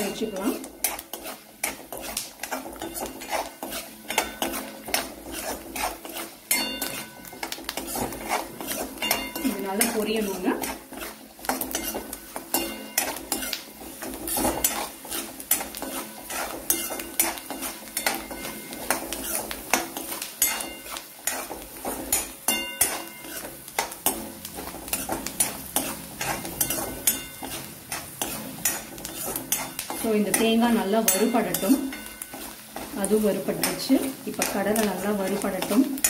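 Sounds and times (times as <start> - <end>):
food frying in oil: 0.0 - 36.0
spoon scraping metal pan: 0.0 - 36.0.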